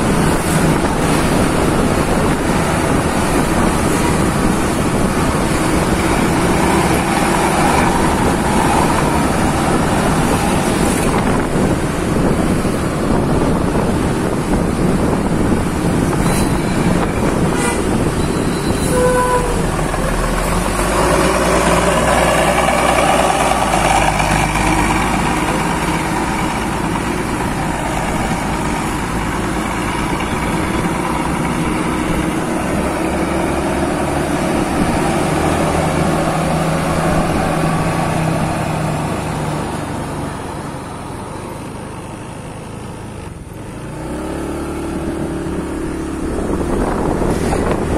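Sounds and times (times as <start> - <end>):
wind noise on microphone: 0.0 - 41.1, 42.8 - 47.9
bus diesel engine running: 0.0 - 47.9
horn toot: 17.5 - 20.2.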